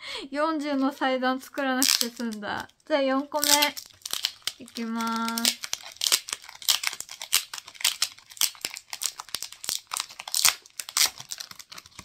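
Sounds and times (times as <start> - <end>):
wrapper crinkling and tearing: 0.6 - 12.0.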